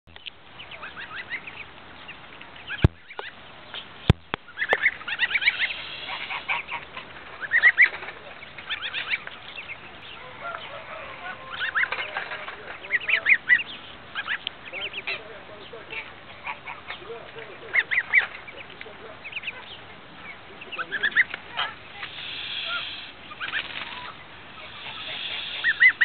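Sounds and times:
ducklings and goslings peeping: 0:00.1 - 0:26.0
sharp clicks: 0:02.8 - 0:04.9.

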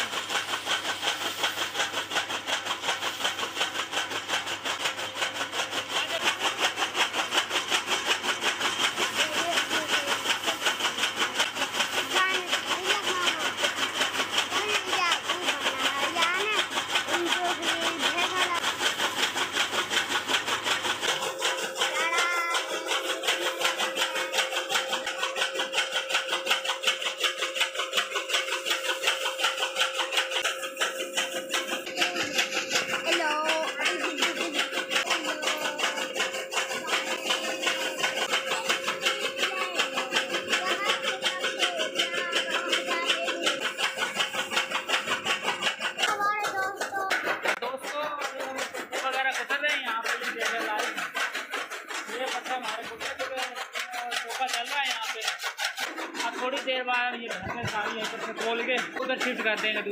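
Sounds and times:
chaff cutter blades chopping: 0:00.0 - 0:59.9
electric motor running: 0:00.0 - 0:59.9.

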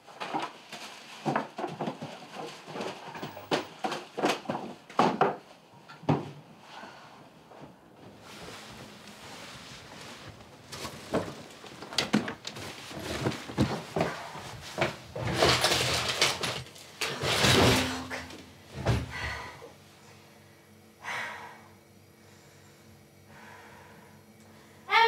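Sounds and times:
objects knocking and clattering: 0:00.0 - 0:06.4, 0:10.7 - 0:19.2
clothes and bags rustling: 0:07.6 - 0:18.9.

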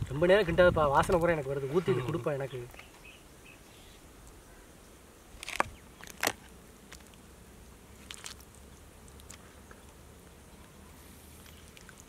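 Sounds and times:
crab shells cracking: 0:05.4 - 0:07.2, 0:08.0 - 0:09.4.

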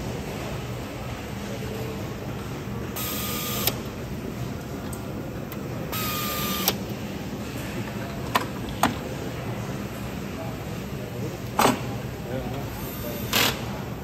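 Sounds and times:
steady factory hum: 0:00.0 - 0:14.0
pneumatic screwdriver hiss and whine: 0:06.0 - 0:06.8.

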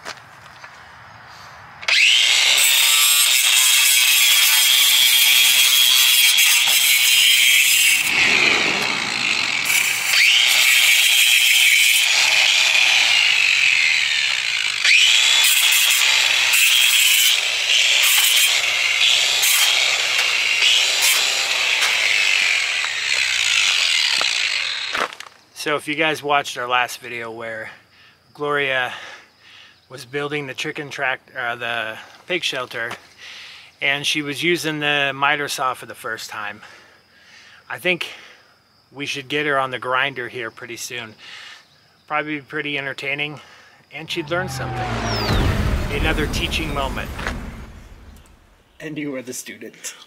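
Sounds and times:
angle grinder cutting wire: 0:01.8 - 0:25.3.

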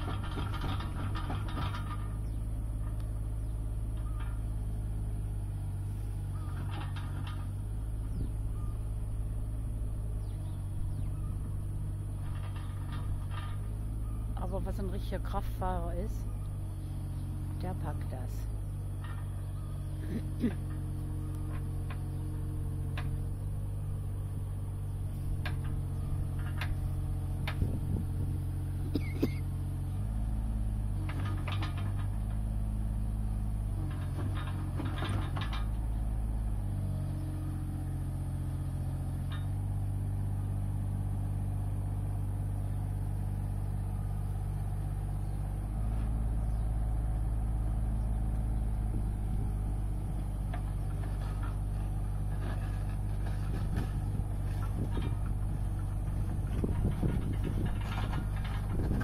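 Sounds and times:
clanks and knocks: 0:00.0 - 0:03.0, 0:06.4 - 0:08.2, 0:11.2 - 0:15.4, 0:18.9 - 0:24.4, 0:25.2 - 0:28.3, 0:30.9 - 0:32.6, 0:33.7 - 0:36.0, 0:39.2 - 0:39.7, 0:50.1 - 0:59.0
excavator engine running: 0:00.0 - 0:59.0.

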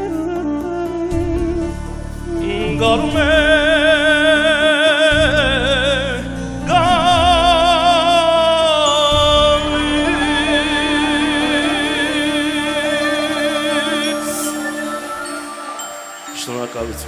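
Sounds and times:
man singing with vibrato: 0:01.6 - 0:16.8
folk ensemble playing: 0:09.4 - 0:16.9.

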